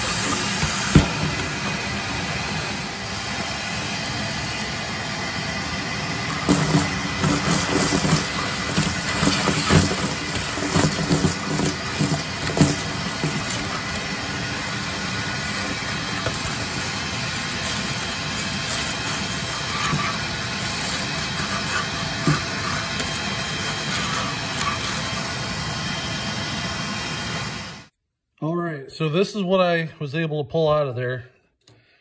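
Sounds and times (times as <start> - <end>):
debris rattling up a hose: 0.0 - 4.8, 6.0 - 25.7
shop vacuum running: 0.0 - 27.9.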